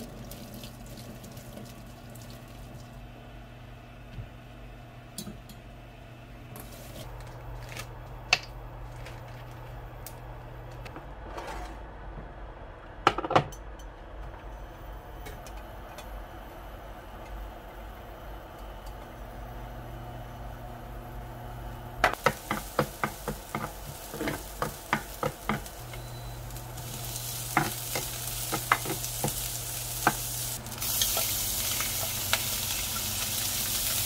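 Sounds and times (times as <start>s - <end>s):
pans clinking and knocking: 22.0s - 25.7s, 27.5s - 29.4s.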